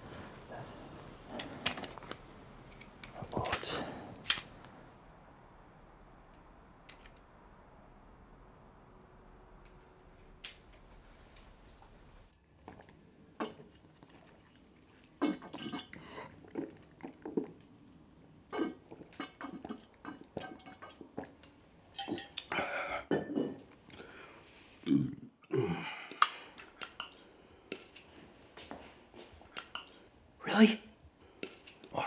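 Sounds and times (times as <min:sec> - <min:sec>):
gulping from a bottle: 0:15.2 - 0:17.6.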